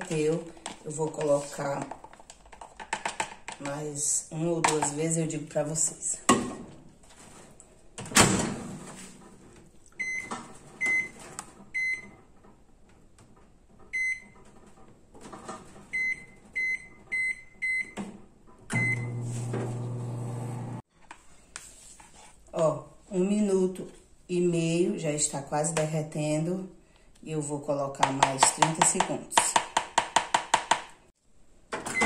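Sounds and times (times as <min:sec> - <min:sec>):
microwave keypad beeps: 0:16.0 - 0:18.0, 0:18.8 - 0:19.2
microwave humming: 0:18.7 - 0:20.8.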